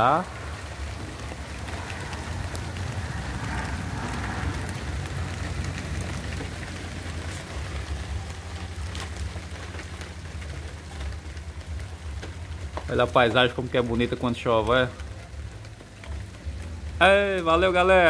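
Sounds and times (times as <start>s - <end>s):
low rumble: 0.0s - 10.6s
rain falling: 0.0s - 18.0s.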